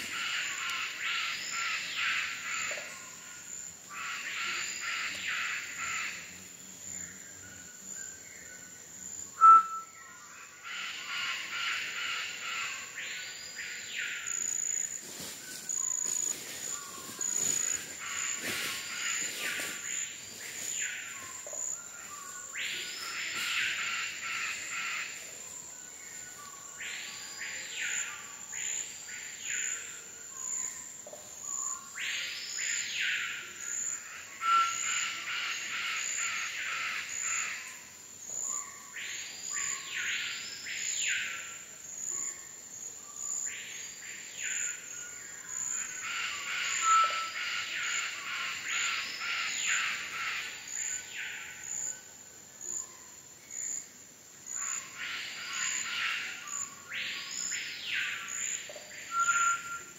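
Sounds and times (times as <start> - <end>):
rough insect chorus: 0.0 - 59.9
bird calling: 9.4 - 9.9.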